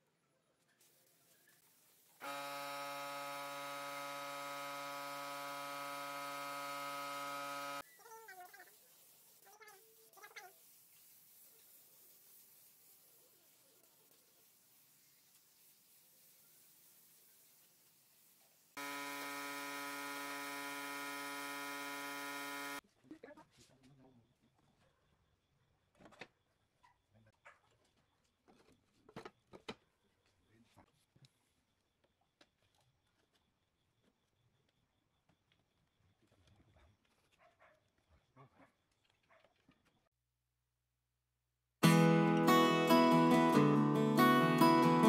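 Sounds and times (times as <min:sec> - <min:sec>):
electric buzzing hum: 0:02.2 - 0:07.8, 0:18.8 - 0:22.8
spray gun hissing: 0:08.4 - 0:22.8.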